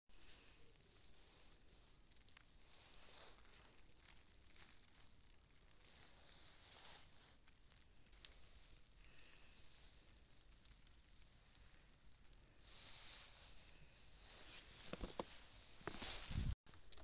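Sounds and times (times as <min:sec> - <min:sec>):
footsteps crunching in snow: 0:14.2 - 0:16.6.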